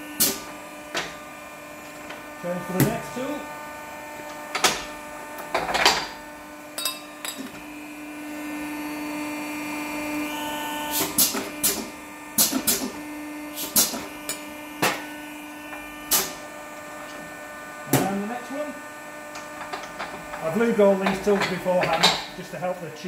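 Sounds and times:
machine humming: 0.0s - 23.0s
metal clanks and knocks: 19.6s - 22.4s.

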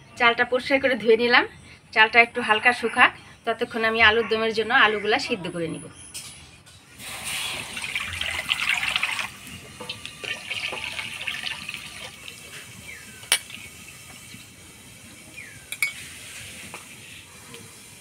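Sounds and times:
water pouring into a pot: 7.0s - 14.9s.

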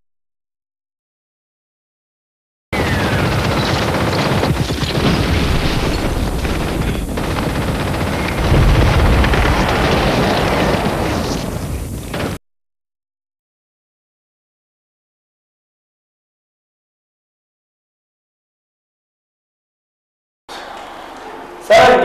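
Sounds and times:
machine-gun bursts: 2.8s - 12.4s
deep boom: 5.0s - 12.4s.

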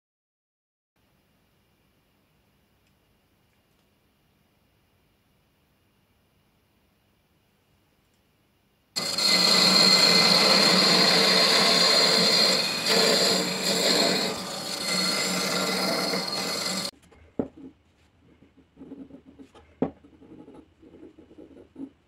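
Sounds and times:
cutting tool rasping wood: 9.0s - 16.9s
wood lathe humming: 9.0s - 16.9s.

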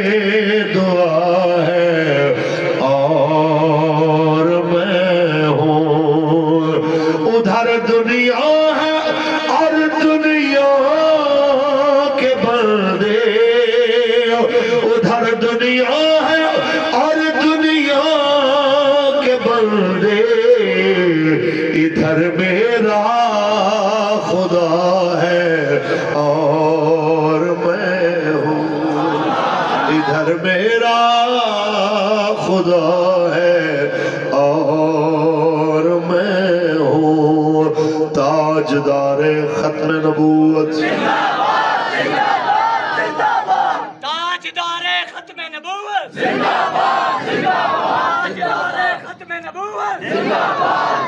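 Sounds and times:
man singing unaccompanied: 0.0s - 29.1s, 29.9s - 40.9s
man chanting through loudspeaker: 0.0s - 29.2s, 29.9s - 41.0s, 43.9s - 46.2s, 48.3s - 50.1s.

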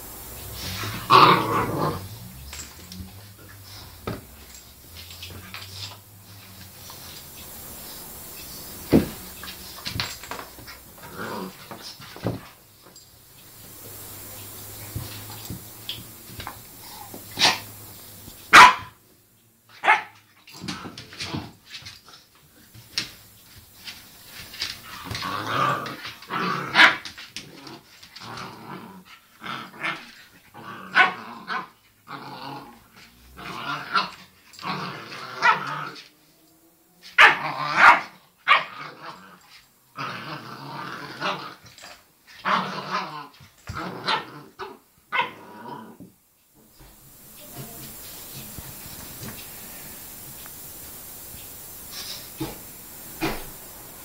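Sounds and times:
dogs growling: 0.2s - 12.6s, 24.7s - 36.1s, 38.6s - 46.1s
dogs barking sharply: 18.5s - 19.0s, 19.8s - 20.2s, 37.2s - 38.7s.

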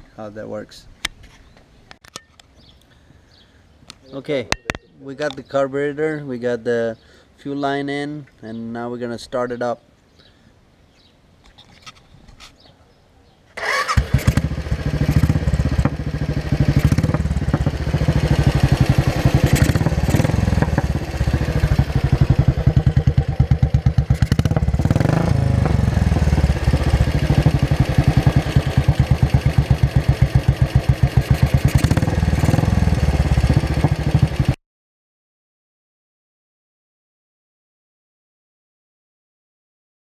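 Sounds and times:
motorcycle engine exhaust pulses: 14.2s - 34.6s.

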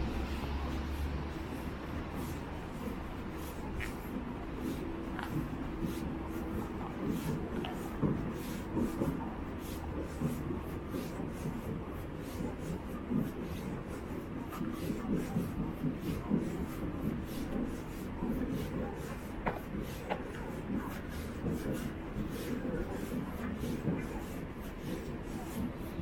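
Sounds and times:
footsteps on a trail: 2.2s - 9.2s.

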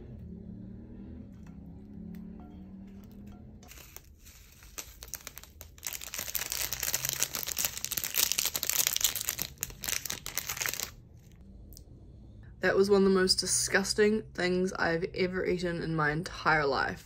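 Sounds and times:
seeds pattering onto a plate: 3.7s - 10.2s
plastic sachet crinkling: 3.7s - 11.4s.

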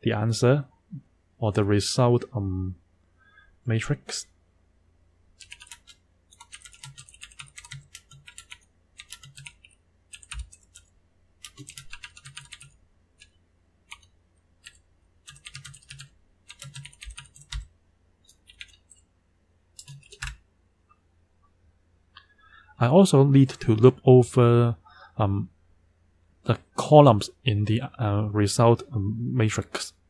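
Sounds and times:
keyboard typing: 5.4s - 19.0s, 19.7s - 20.4s.

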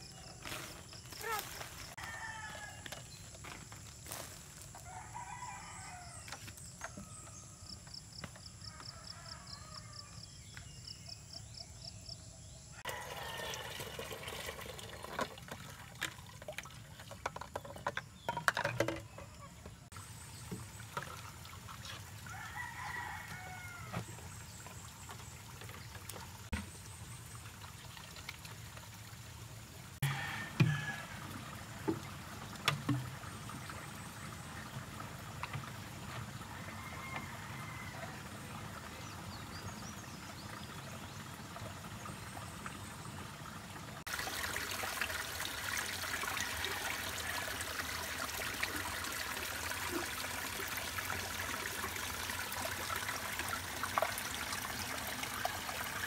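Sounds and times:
farmyard ambience: 0.0s - 10.8s
roosters crowing: 2.0s - 2.9s, 12.8s - 14.0s, 22.3s - 24.1s, 30.0s - 31.2s, 36.5s - 38.4s.

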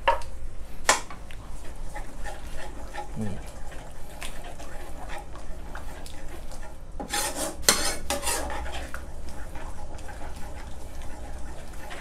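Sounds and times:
metal spoon scraping frying pan: 3.8s - 12.0s.

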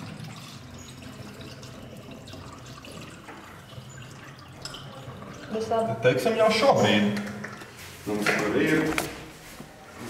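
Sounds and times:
liquid trickling into bottle: 0.0s - 6.0s.

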